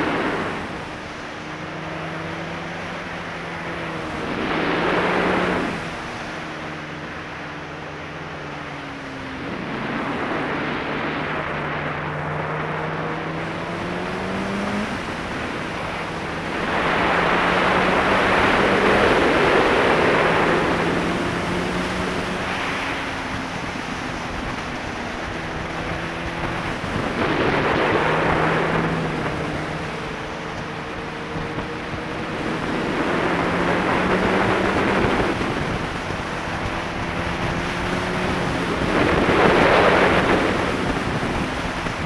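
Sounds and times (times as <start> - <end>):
motorcycle engine revving: 0.0 - 42.0
wind noise on microphone: 0.0 - 42.0.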